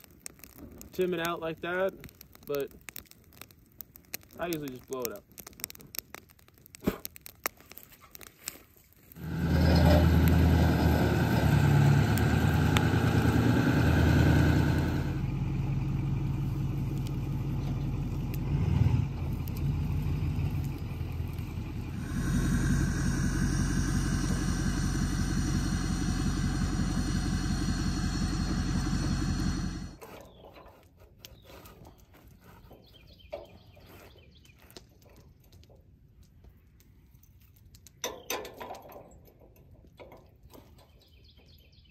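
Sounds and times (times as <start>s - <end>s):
vehicle engine running: 9.2s - 30.0s.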